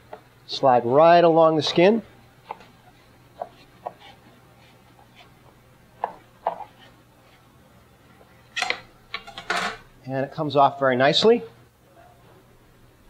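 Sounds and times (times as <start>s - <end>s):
knife scraping on cutting board: 3.3s - 5.4s, 6.0s - 7.4s.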